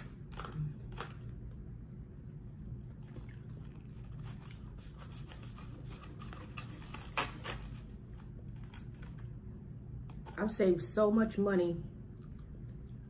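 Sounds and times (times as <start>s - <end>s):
food scratching and rubbing: 3.1s - 9.2s.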